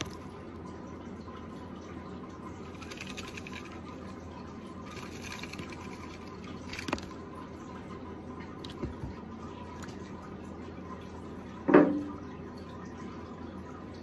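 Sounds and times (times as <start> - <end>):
water pouring into plastic tub: 1.8 - 7.9
water splashing: 1.8 - 10.2.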